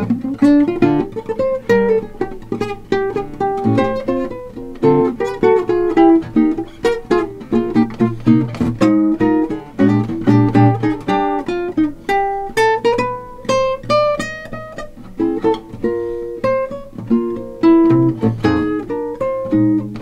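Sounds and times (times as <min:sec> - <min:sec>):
fingerstyle classical guitar: 0:00.0 - 0:20.0.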